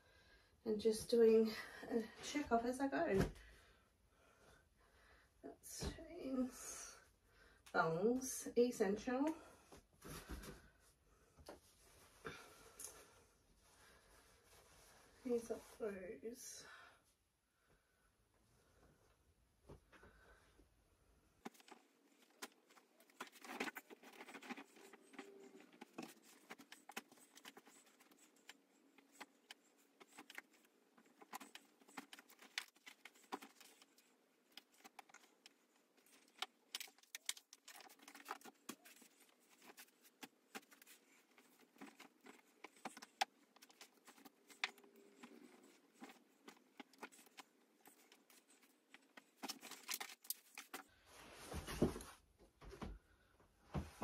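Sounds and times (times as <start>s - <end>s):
clothes rustling: 21.2s - 53.0s.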